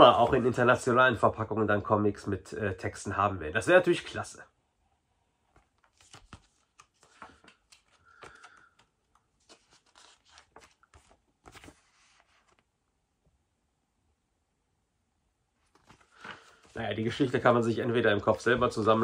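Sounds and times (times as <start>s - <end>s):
paper pages rustling: 5.4s - 12.7s, 15.6s - 19.0s.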